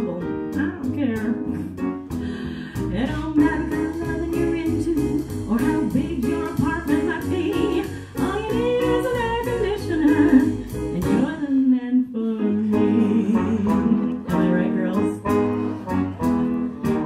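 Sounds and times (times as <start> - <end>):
small jazz band playing: 0.0 - 17.0
trombone leading: 13.4 - 17.0.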